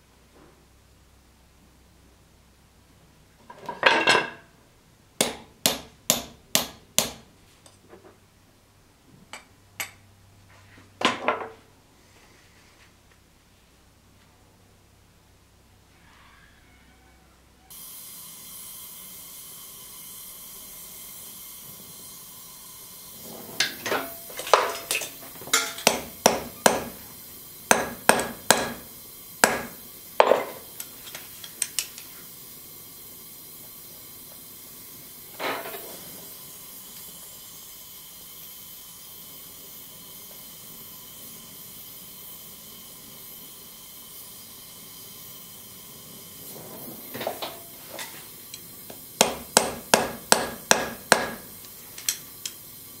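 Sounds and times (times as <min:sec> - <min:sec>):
steady hiss: 0:00.0 - 0:53.0
hammer striking metal on anvil: 0:05.2 - 0:07.3, 0:23.6 - 0:27.0, 0:27.7 - 0:30.6, 0:49.2 - 0:51.5.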